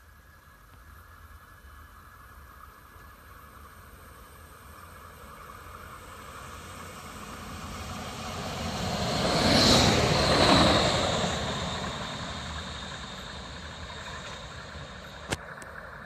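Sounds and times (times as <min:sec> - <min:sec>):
diesel railcar passing: 0:00.9 - 0:16.0
high whine: 0:04.2 - 0:16.0.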